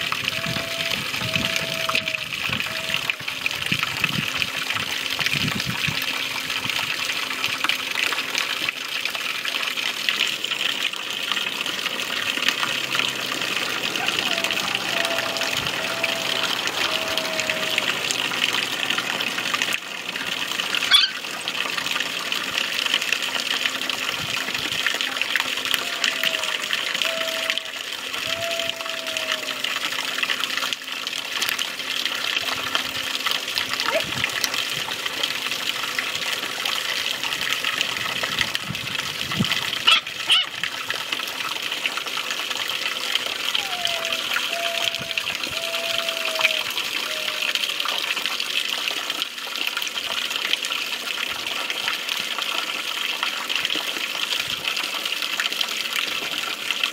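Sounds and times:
water spraying onto dirt: 0:00.0 - 0:56.9
puppies whimpering: 0:13.7 - 0:18.2, 0:20.8 - 0:21.2, 0:25.8 - 0:27.7, 0:39.9 - 0:40.5, 0:43.5 - 0:48.0.

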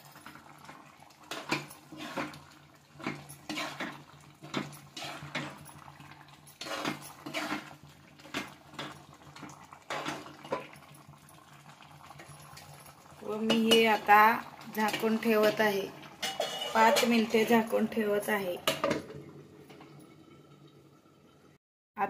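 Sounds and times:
spoon scraping and clinking pan: 0:01.3 - 0:09.1, 0:16.2 - 0:17.9.

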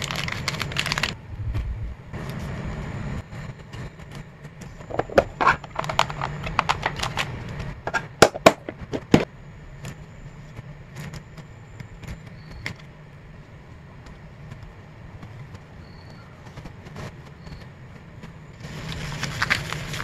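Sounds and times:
plastic crackling and clicking: 0:00.0 - 0:01.2, 0:04.8 - 0:12.9.

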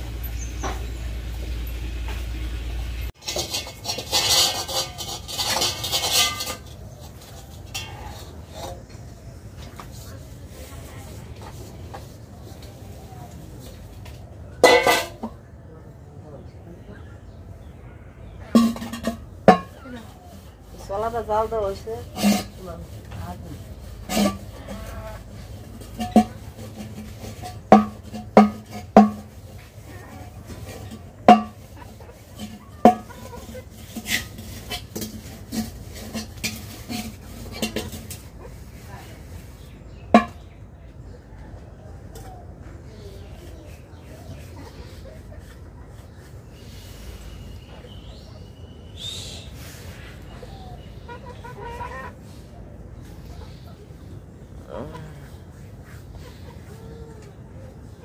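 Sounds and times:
steel pots clanking: 0:00.0 - 0:09.0, 0:14.6 - 0:15.4, 0:18.5 - 0:19.9, 0:23.9 - 0:29.6, 0:30.2 - 0:38.4, 0:40.1 - 0:40.4
metal dishes clattering: 0:03.1 - 0:09.0, 0:14.6 - 0:15.4, 0:18.4 - 0:19.9, 0:22.1 - 0:22.6, 0:24.0 - 0:29.6, 0:30.5 - 0:38.5.

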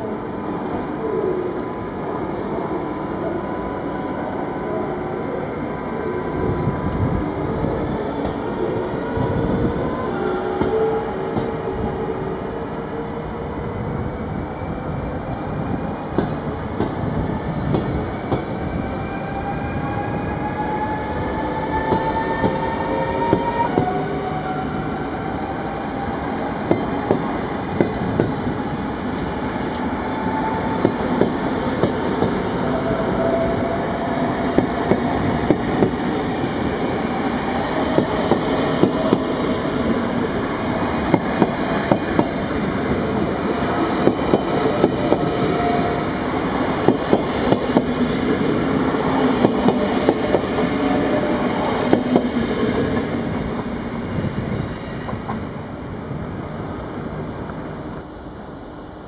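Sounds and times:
train rumble: 0:00.0 - 0:59.0
train wheels clicking on track: 0:08.1 - 0:09.7, 0:10.5 - 0:11.6, 0:16.1 - 0:18.6, 0:26.6 - 0:32.7, 0:34.0 - 0:53.7.

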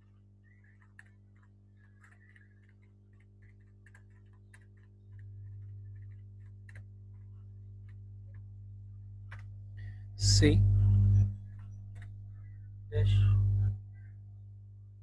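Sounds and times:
steady low hum: 0:00.0 - 0:15.0
keyboard keys clicking: 0:00.6 - 0:06.9.

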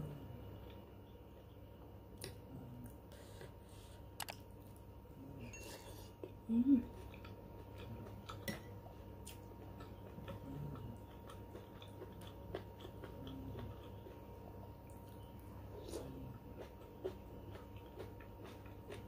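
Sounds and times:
quiet chewing: 0:00.1 - 0:19.0.

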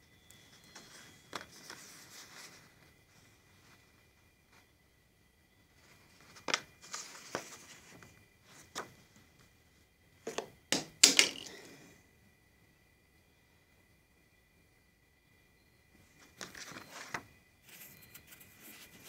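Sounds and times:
faint high-pitched whine: 0:00.0 - 0:19.0
rustling: 0:00.4 - 0:04.7, 0:05.7 - 0:09.1, 0:16.2 - 0:19.0.

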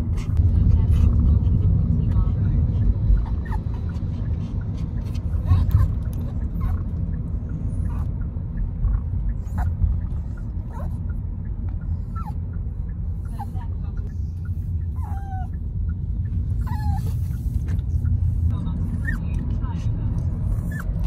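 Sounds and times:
moving car rumble: 0:00.0 - 0:21.0
dog whimpering: 0:03.0 - 0:04.3, 0:05.0 - 0:06.9, 0:09.4 - 0:11.0, 0:12.0 - 0:12.4, 0:14.2 - 0:15.6, 0:16.6 - 0:17.5, 0:20.6 - 0:21.0.

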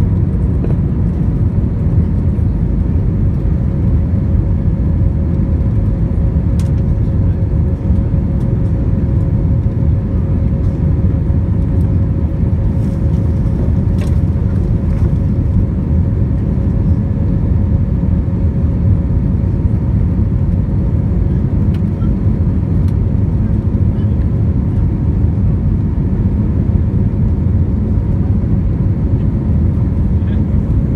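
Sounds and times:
aircraft cabin rumble: 0:00.0 - 0:30.9.

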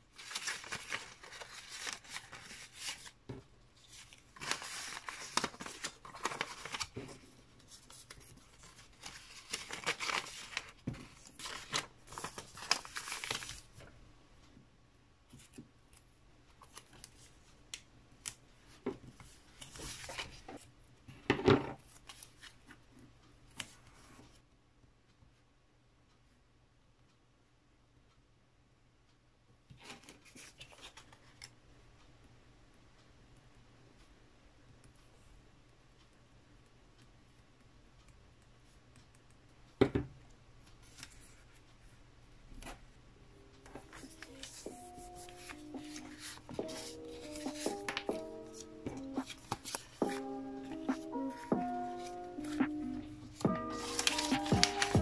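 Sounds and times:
paper rustling and crinkling: 0:00.1 - 0:14.0, 0:16.6 - 0:17.5, 0:18.2 - 0:20.7, 0:21.6 - 0:22.8, 0:29.7 - 0:31.6, 0:40.8 - 0:41.7, 0:43.6 - 0:55.0.

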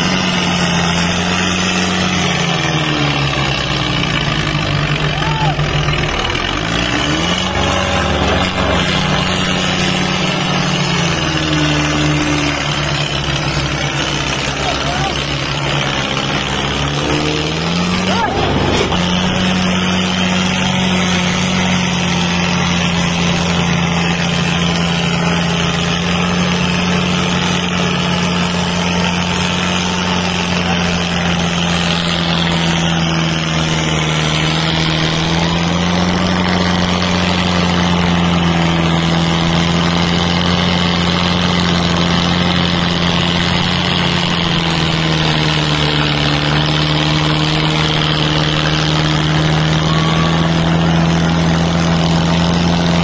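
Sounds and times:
tractor diesel engines under load: 0:00.0 - 0:53.0.

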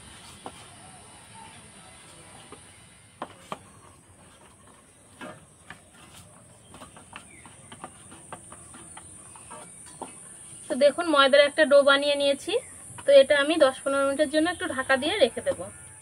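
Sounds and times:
hands kneading dough in steel bowl: 0:02.0 - 0:11.0.

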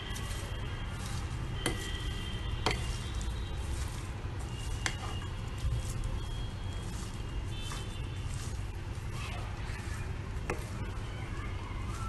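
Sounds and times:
spatula stirring salad in bowl: 0:00.0 - 0:11.0.

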